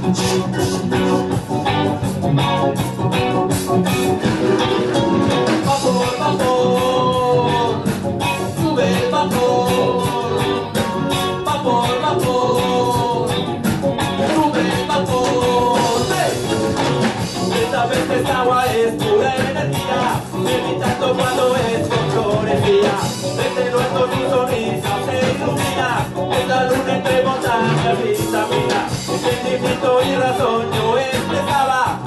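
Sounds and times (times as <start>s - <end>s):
reggae band playing: 0.0s - 32.0s
person singing: 5.5s - 13.5s, 14.2s - 16.6s, 17.4s - 32.0s.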